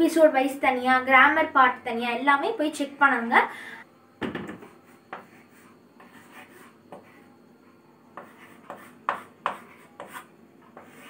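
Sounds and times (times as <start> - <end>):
chalk scratching on chalkboard: 4.8 - 7.3, 8.1 - 11.0.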